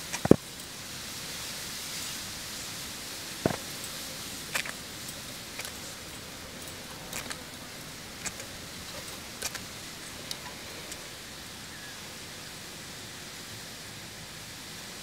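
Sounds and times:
steady hiss: 0.0s - 15.0s
small sharp clicks: 0.1s - 0.7s, 3.4s - 7.6s.

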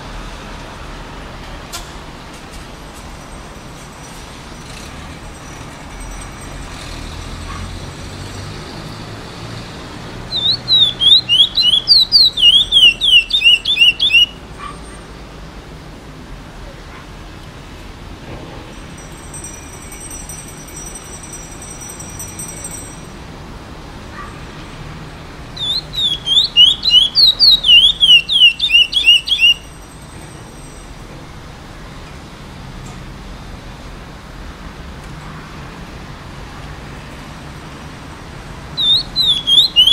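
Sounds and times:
low traffic hum: 0.0s - 39.9s
bird whistling clear notes: 10.3s - 14.4s, 25.6s - 29.6s, 38.8s - 39.9s.

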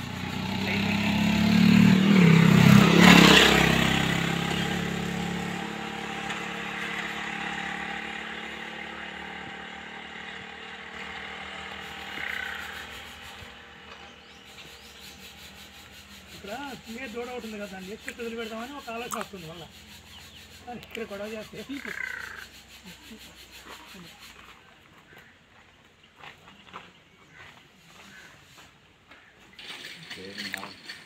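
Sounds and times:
vehicle engine passing by: 0.0s - 24.6s.

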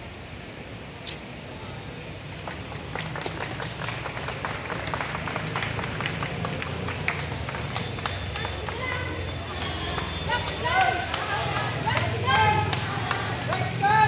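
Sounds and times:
crowd clapping: 2.3s - 14.0s.

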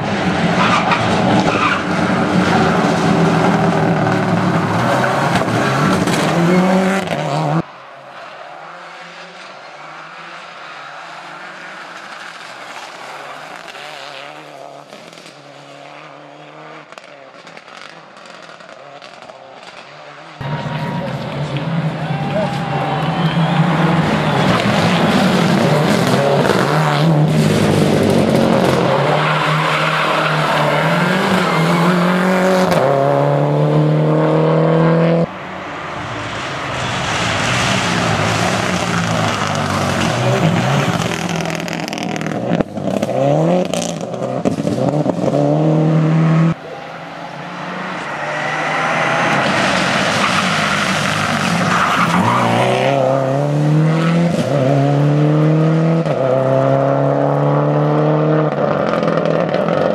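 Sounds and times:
rally car engine at full throttle: 0.0s - 59.9s.

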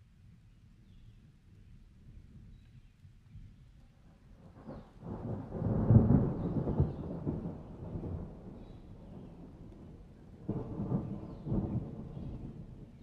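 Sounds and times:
faint rain: 0.0s - 13.0s
thunder rumbling: 4.6s - 13.0s.

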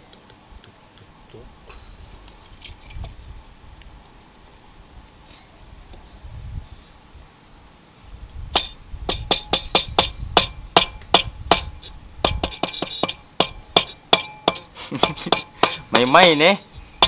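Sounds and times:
rubber mallet tapping metal: 8.6s - 16.5s.

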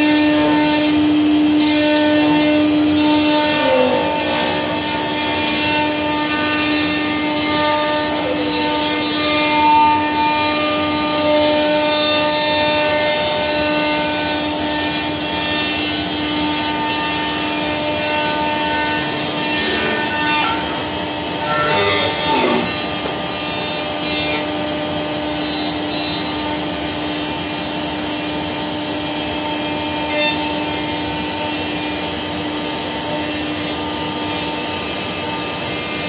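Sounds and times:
router spindle whine: 0.0s - 36.0s
cutter hissing in wood: 19.1s - 26.4s.

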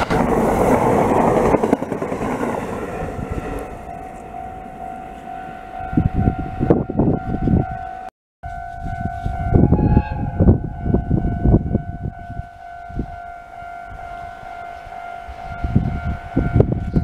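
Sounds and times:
wind rumble on microphone: 0.0s - 4.8s, 5.7s - 13.3s, 15.2s - 17.0s
level crossing alarm ringing: 3.4s - 17.0s.

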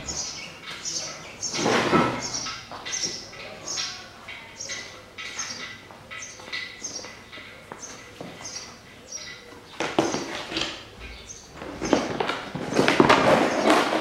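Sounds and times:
mat rustling and scraping on concrete: 11.5s - 14.0s.

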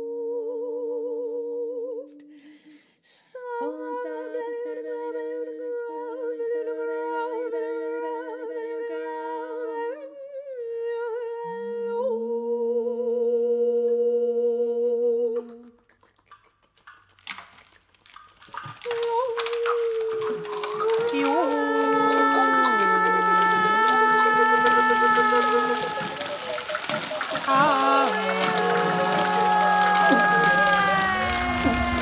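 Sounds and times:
voices humming in harmony: 19.0s - 32.0s.

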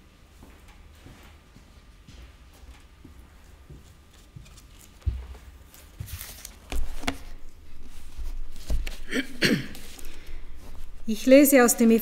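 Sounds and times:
footsteps: 0.4s - 11.9s
rustling: 3.5s - 11.5s.

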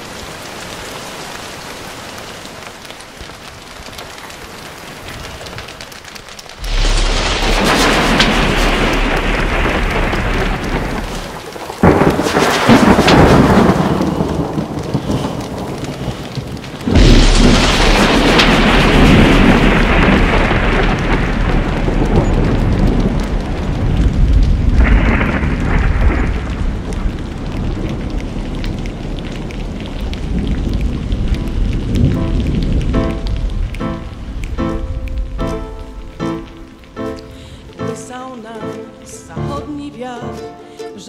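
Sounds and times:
thunderclaps rumbling: 0.0s - 39.4s
rain hiss: 0.0s - 41.0s.

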